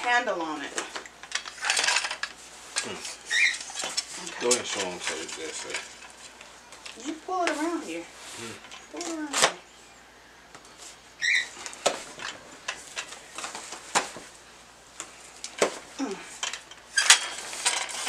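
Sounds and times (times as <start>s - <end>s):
metal light stand handled: 1.2s - 2.4s, 3.3s - 7.6s, 16.4s - 18.0s.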